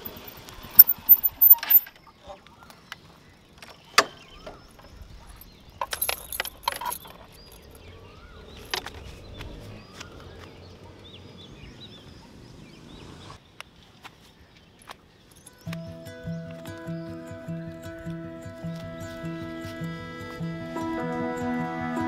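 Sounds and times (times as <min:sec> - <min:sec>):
sharp clicks and rattles: 0:00.0 - 0:02.0, 0:05.8 - 0:07.8
birds chirping: 0:00.0 - 0:21.5.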